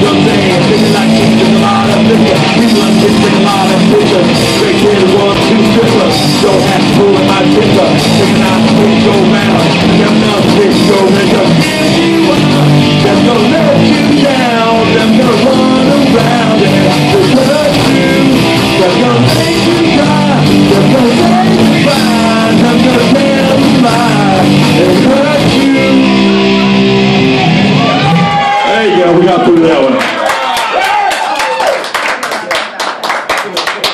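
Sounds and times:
drums: 0.0 - 28.7
bass guitar: 0.0 - 30.0
electric guitars: 0.0 - 30.0.

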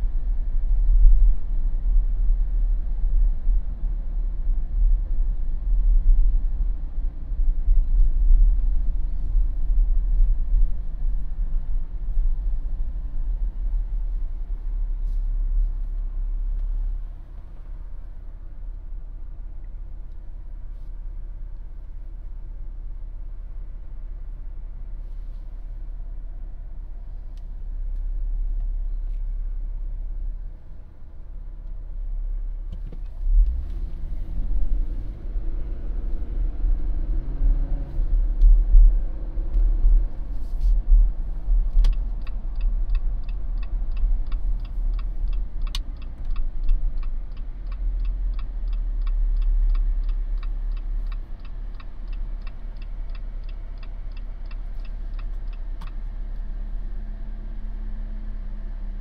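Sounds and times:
car cabin rumble: 0.0 - 22.0, 31.5 - 57.6
turn signal ticking: 32.7 - 58.0.

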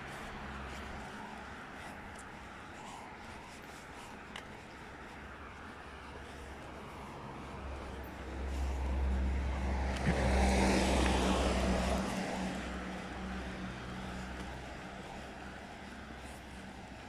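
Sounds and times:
car driving past: 8.8 - 14.4.

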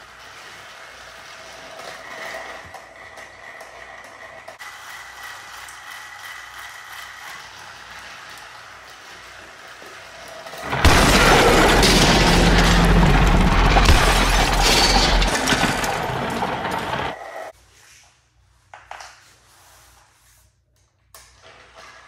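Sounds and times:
toy train motors whirring: 0.0 - 10.7
toy trains crashing and shattering: 4.4 - 17.2
deep rumble: 10.7 - 16.9.

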